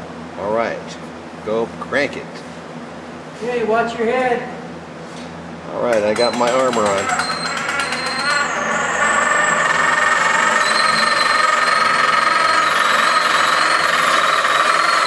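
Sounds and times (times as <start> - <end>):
winch cranking with mechanical rattle: 6.2 - 15.0.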